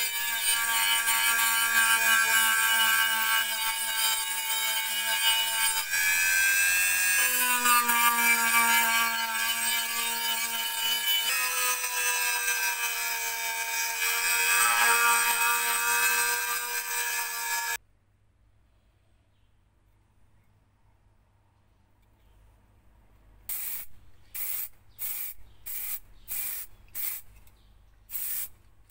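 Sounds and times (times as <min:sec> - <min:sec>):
rotary tool sanding metal whine: 0:00.0 - 0:17.8.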